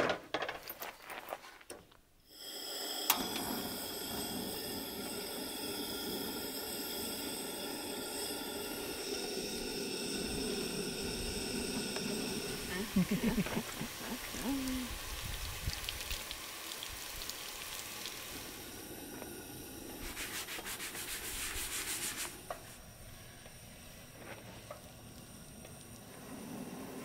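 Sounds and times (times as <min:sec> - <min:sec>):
fast rubbing strokes: 0:20.0 - 0:22.4.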